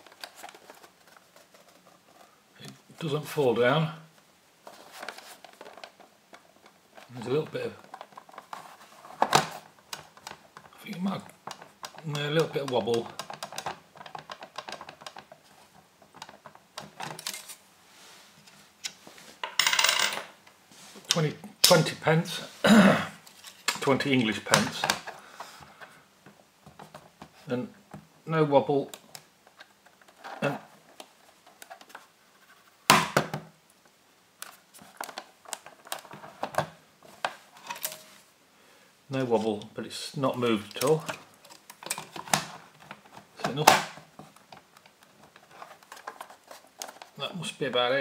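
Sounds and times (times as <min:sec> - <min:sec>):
plastic case clicking and tapping: 0:11.4 - 0:15.4.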